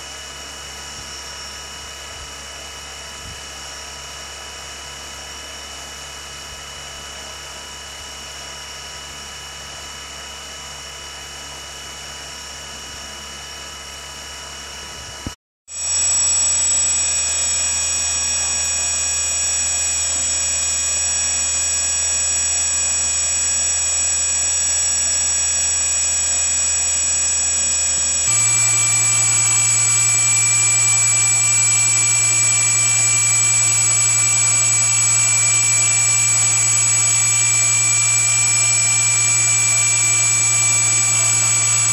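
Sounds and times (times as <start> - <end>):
electric motor whine: 15.0 - 41.9.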